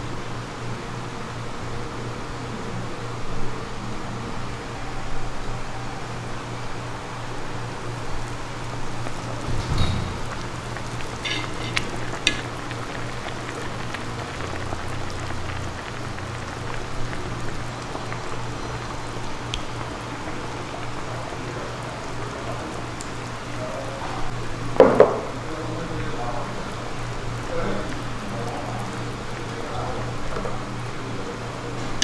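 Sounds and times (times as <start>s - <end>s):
broth bubbling: 7.5s - 24.8s.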